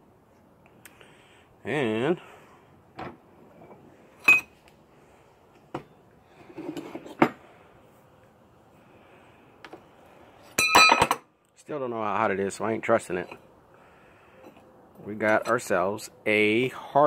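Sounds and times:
ringing metallic clang: 10.6s - 11.2s.

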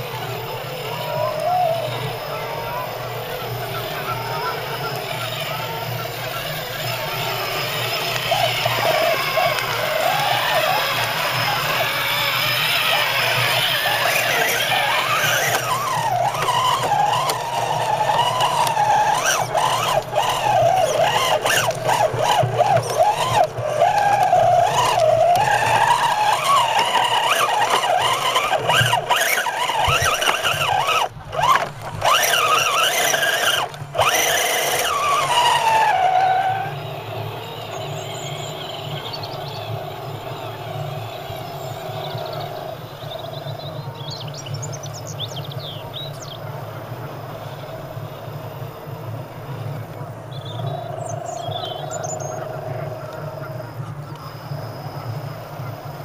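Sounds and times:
toy truck electric motor whining: 0.0s - 44.0s.

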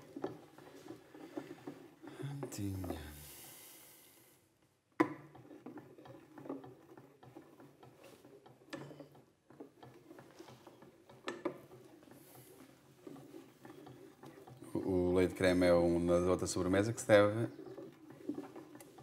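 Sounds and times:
spoon scraping metal pot: 5.2s - 19.0s.

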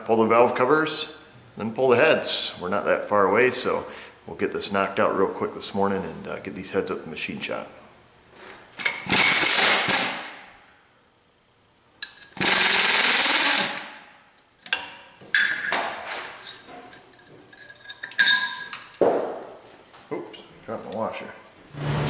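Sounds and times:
power tool running: 12.4s - 13.9s, 21.7s - 22.0s.

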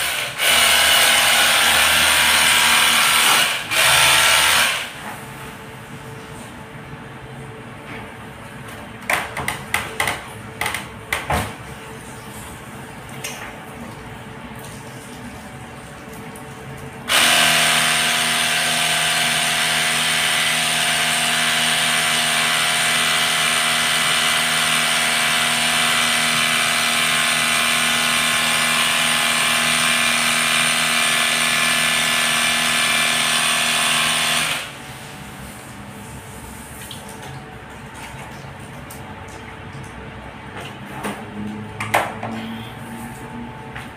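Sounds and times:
pressure washer motor hum: 0.0s - 5.0s, 17.1s - 35.1s.

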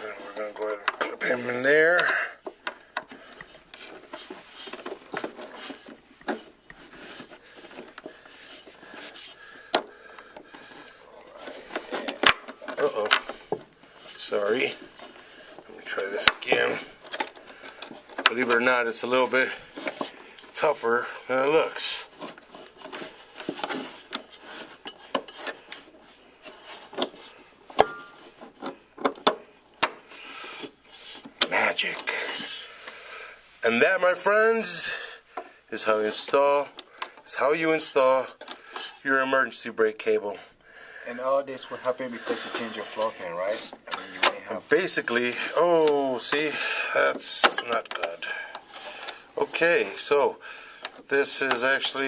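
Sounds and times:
metal rubbing and scraping: 0.0s - 29.0s, 41.3s - 50.4s
metal clip scraping and clicking: 14.4s - 18.7s.

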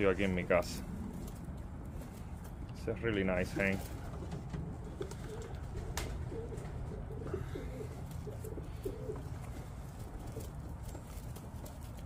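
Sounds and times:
pigeons cooing: 3.4s - 12.0s.

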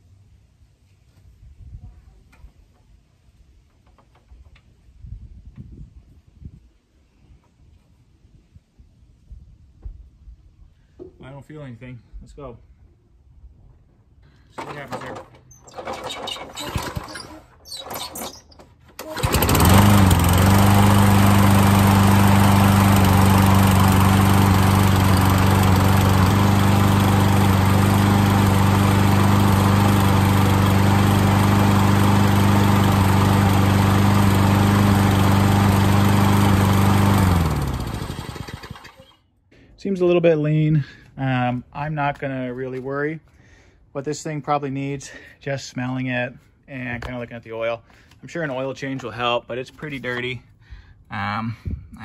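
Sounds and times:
starter cord pulls: 14.6s - 20.8s, 37.2s - 39.2s
lawn mower engine running: 14.6s - 39.2s.

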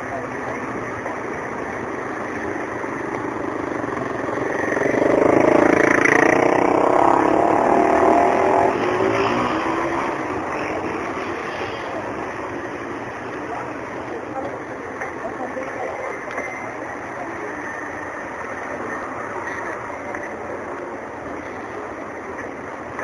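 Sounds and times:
street traffic noise: 0.0s - 23.0s
vehicle engine passing by: 4.4s - 12.4s.

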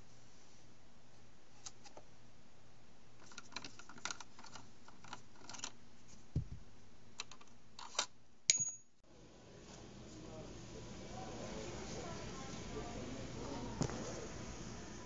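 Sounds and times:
sharp ringing click: 8.5s - 8.9s.

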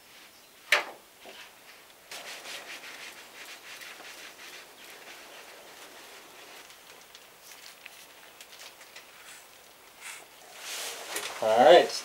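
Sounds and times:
paintbrush scraping on sheet metal: 2.1s - 6.9s.

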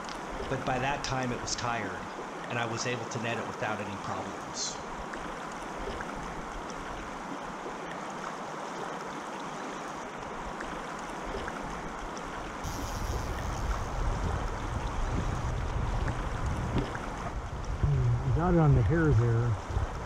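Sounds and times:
low rumble: 13.6s - 20.0s.

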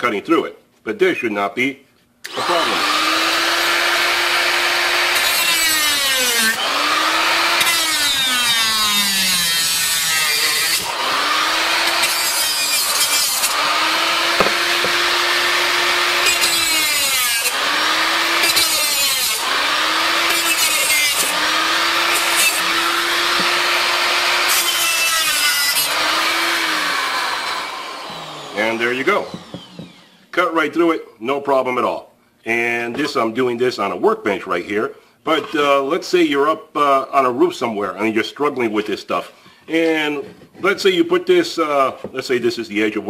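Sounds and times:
cut-off tool motor whine: 2.3s - 30.3s.

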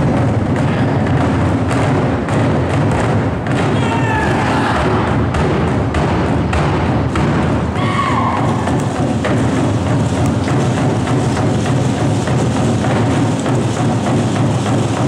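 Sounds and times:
drum ensemble playing fast: 0.0s - 15.0s.

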